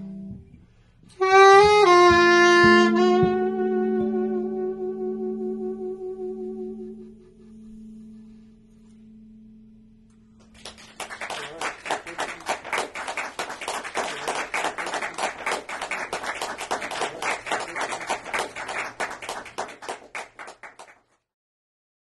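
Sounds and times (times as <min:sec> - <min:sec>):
audience applauding: 0:10.6 - 0:21.1.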